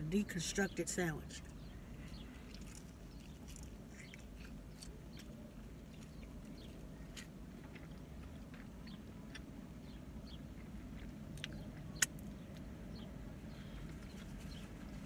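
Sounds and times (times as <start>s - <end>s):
low steady hum: 0.0s - 15.0s
person chewing: 2.0s - 12.7s
wet mouth clicks and smacks: 10.6s - 12.4s.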